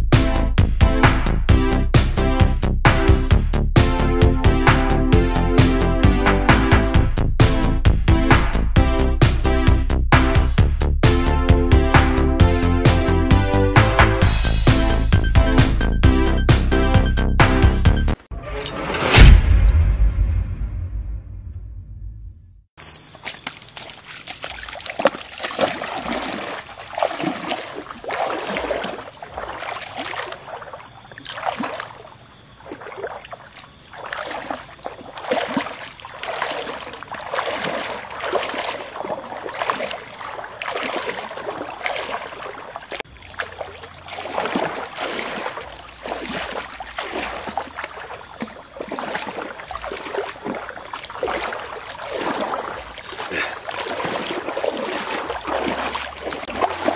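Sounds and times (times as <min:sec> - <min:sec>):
wading through shallow water: 0:22.8 - 0:56.9
steady high-pitched tone: 0:25.9 - 0:56.9.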